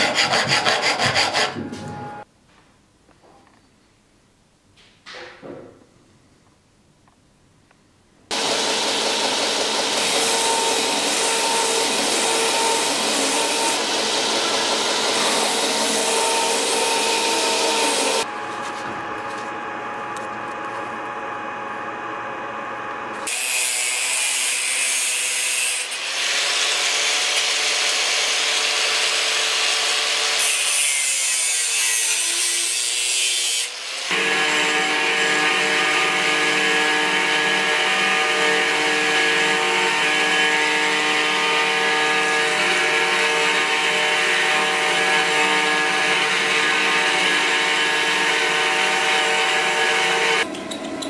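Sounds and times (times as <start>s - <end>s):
angle grinder cutting sheet metal: 0.0s - 1.7s, 8.3s - 19.4s, 23.1s - 51.0s
power tool grinding wood: 0.0s - 1.7s, 8.3s - 19.5s, 23.1s - 50.5s
steady machine hum: 8.3s - 23.3s.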